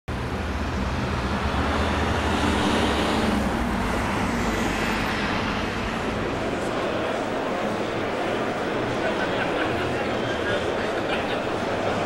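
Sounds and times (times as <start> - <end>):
vehicle engine passing: 0.1 - 9.0
road traffic noise: 0.1 - 12.0.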